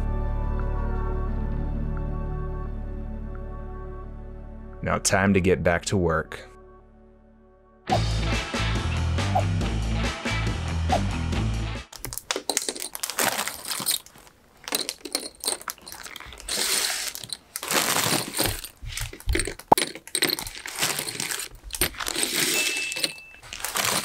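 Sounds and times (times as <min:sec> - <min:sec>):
metal rivets clinking: 0:12.0 - 0:24.0
plastic bag crinkling: 0:12.0 - 0:24.0.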